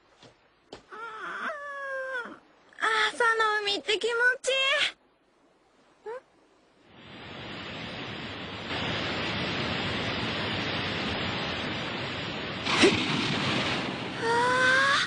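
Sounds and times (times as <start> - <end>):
breaking wave surf: 7.0 - 15.0
sharp splash: 12.6 - 14.2
girl exclaiming: 14.2 - 15.0.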